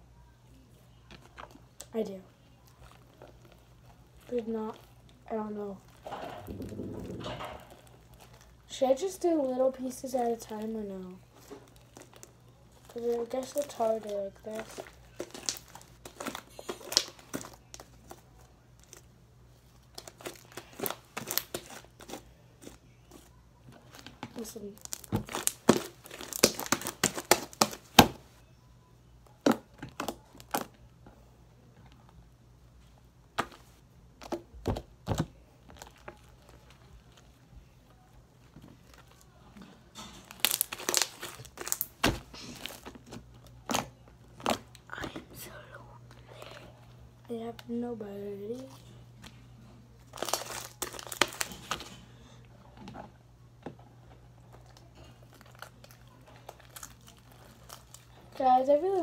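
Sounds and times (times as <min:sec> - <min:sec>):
slime crackling and squelching: 0:01.2 - 0:19.1, 0:19.8 - 0:28.1, 0:33.4 - 0:45.2, 0:50.0 - 0:52.0, 0:54.5 - 0:59.0.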